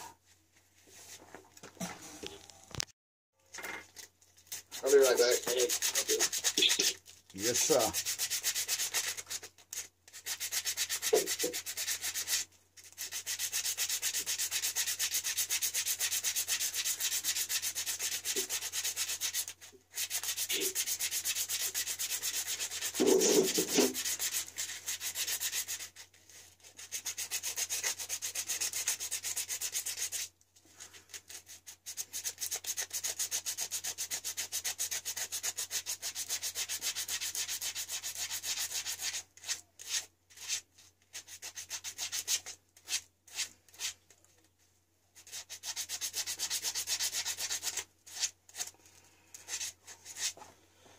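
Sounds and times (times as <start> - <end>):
rapid scratchy scrubbing: 4.5 - 30.3.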